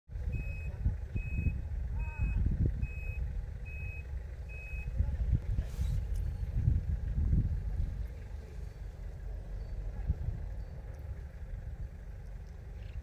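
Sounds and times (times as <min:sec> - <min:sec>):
low rumble: 0:00.1 - 0:13.0
reversing alarm beeping: 0:00.2 - 0:05.0.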